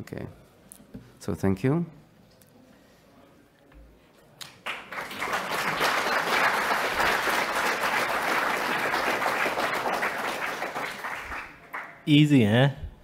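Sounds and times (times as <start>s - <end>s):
audience applause: 4.6s - 12.0s.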